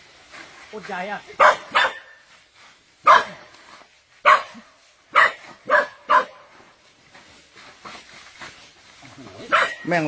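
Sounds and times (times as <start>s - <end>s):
dog barking: 1.4s - 2.2s, 3.0s - 3.5s, 4.2s - 6.5s, 9.4s - 9.9s.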